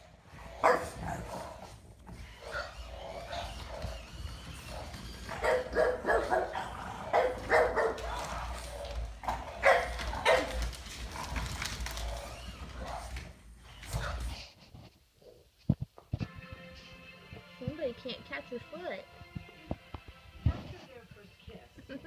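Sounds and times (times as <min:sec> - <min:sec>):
dogs barking: 0:00.4 - 0:14.4.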